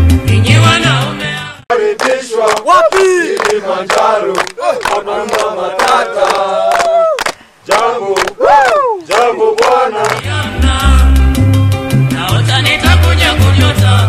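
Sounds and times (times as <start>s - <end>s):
men chanting and shouting: 1.7s - 11.0s
hand clapping in time: 2.0s - 10.4s.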